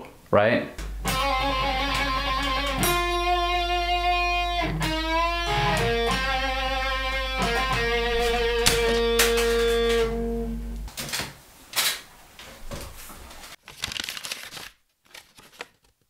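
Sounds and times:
electric guitar note ringing: 0:00.8 - 0:10.9
amp hum: 0:00.8 - 0:11.0
paper-like crackling: 0:13.5 - 0:16.0.

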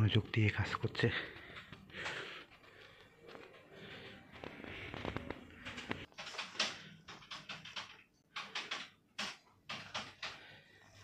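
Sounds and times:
computer keystrokes: 0:05.7 - 0:10.4.

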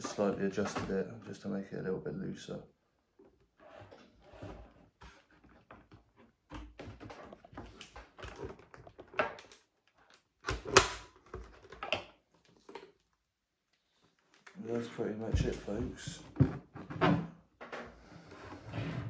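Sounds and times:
plastic helmet clicks and knocks: 0:05.6 - 0:13.0.

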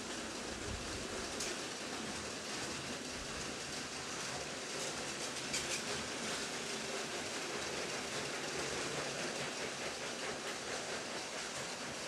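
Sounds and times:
toy train wheels rattling on track: 0:04.8 - 0:12.0.

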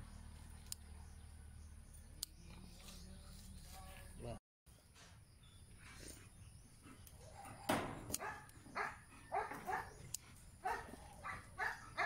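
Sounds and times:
dog barking: 0:07.3 - 0:10.0, 0:10.6 - 0:12.0.

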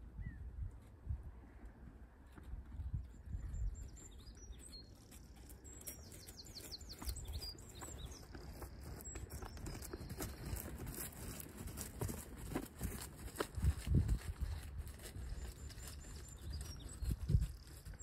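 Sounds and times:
birds chirping: 0:03.1 - 0:13.0, 0:15.2 - 0:18.0
horse hoofbeats: 0:05.0 - 0:18.0.

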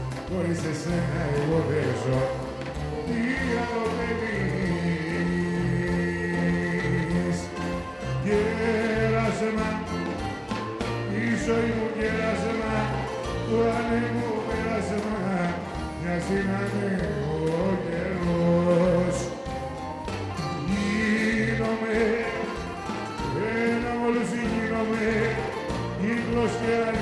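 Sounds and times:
live band playing popular music: 0:00.0 - 0:27.0.

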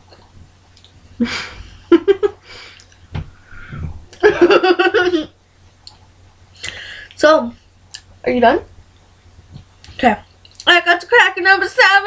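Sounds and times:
person laughing: 0:01.2 - 0:02.7, 0:03.6 - 0:05.3.

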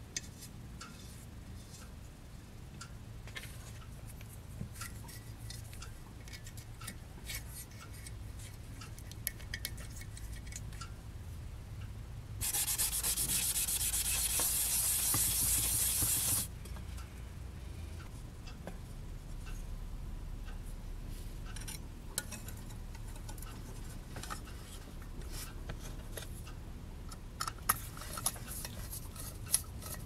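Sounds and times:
hand rubbing brass part: 0:12.4 - 0:16.5.

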